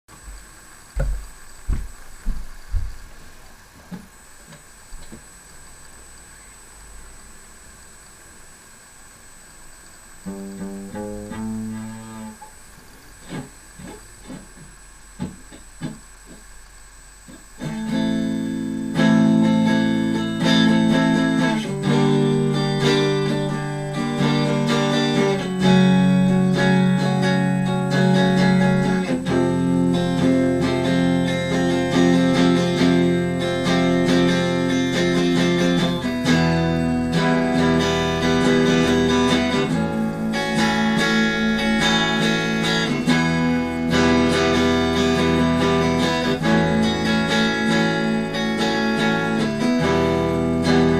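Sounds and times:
clean electric guitar playing: 0:10.2 - 0:16.4, 0:17.2 - 0:50.9.

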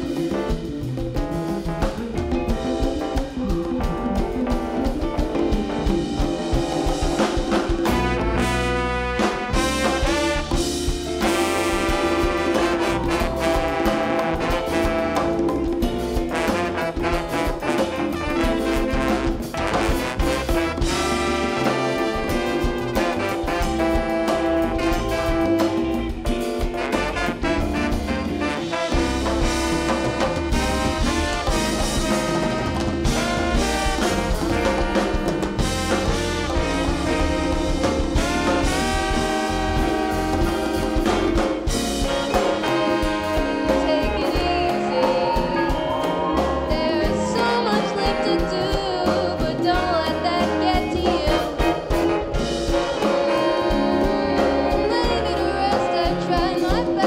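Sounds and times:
bass: 0:00.0 - 0:57.0
drum kit: 0:00.0 - 0:57.0
electric guitar: 0:00.0 - 0:57.0
horn section playing: 0:00.0 - 0:57.0.

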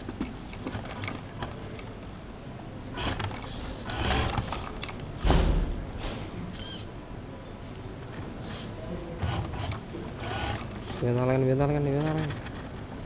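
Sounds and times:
robot drive motors running: 0:02.9 - 0:05.4, 0:06.5 - 0:06.9, 0:08.4 - 0:12.7
thump: 0:05.2 - 0:06.2.

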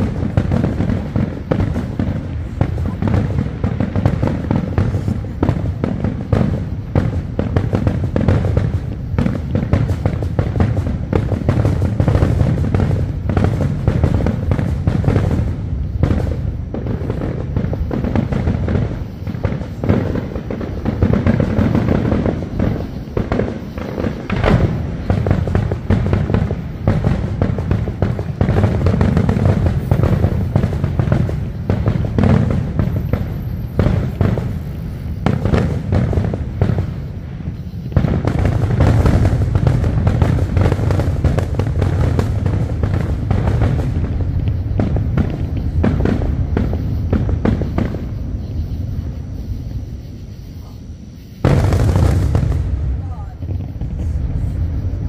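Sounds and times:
fireworks booming and crackling: 0:00.0 - 0:55.0.

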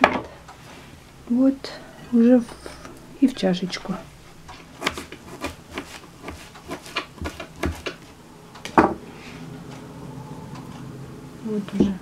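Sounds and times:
knife chopping on cutting board: 0:04.8 - 0:08.0.

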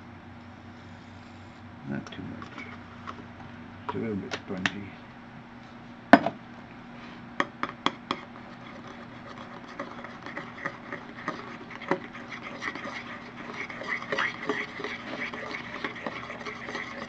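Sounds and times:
utensil clacking against bowl: 0:07.4 - 0:17.0.

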